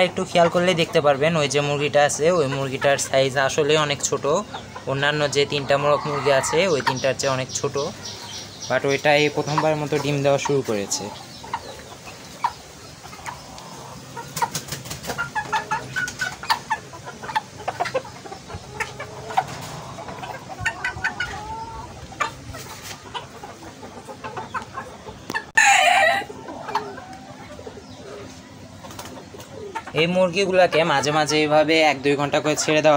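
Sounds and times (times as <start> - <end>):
chickens clucking: 0.0 - 32.9
loud long chicken call: 25.4 - 27.3.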